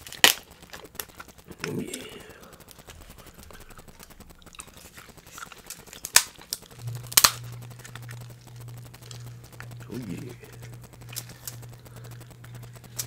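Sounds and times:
low steady hum: 0.0 - 13.0
shell cracking: 0.0 - 13.0
chewing with small clicks: 0.6 - 6.8.

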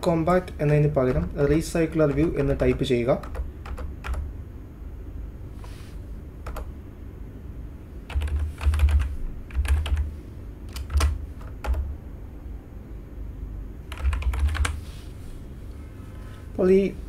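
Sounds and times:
computer keyboard typing: 0.4 - 4.3, 6.4 - 6.7, 8.1 - 10.1, 10.7 - 11.9, 13.9 - 14.8.

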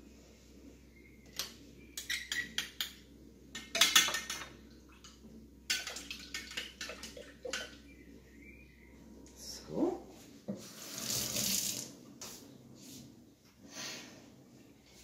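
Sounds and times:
clinks against metal bowl: 1.4 - 4.5, 5.7 - 7.8.

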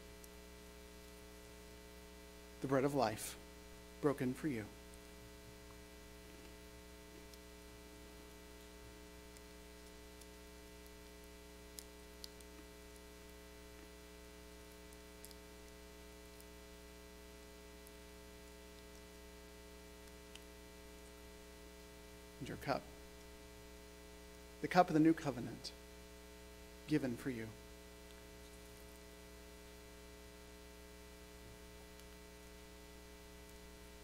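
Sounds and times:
steady electrical hum: 0.0 - 34.0
faint clicks: 11.7 - 13.1, 28.0 - 29.8.

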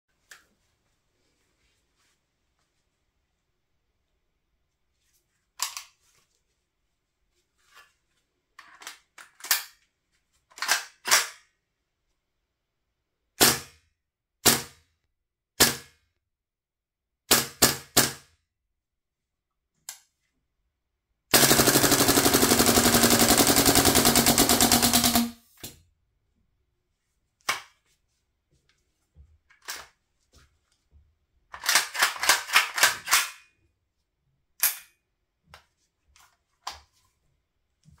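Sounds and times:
airsoft rifle shots: 21.3 - 25.4.

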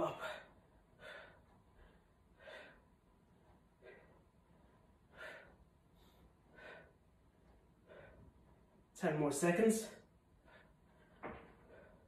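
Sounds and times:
man breathing hard: 0.1 - 3.0, 3.7 - 7.1, 7.7 - 8.6.

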